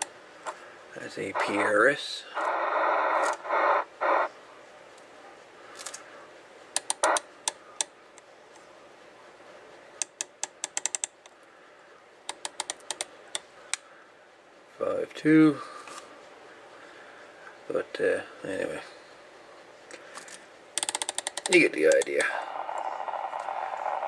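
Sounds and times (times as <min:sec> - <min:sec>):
static hiss bursts: 0:01.1 - 0:04.3.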